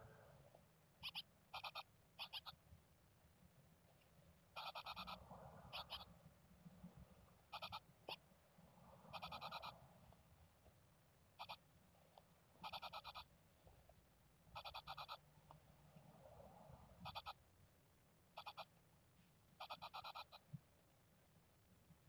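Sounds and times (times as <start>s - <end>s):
low steady hum: 0.0s - 4.6s.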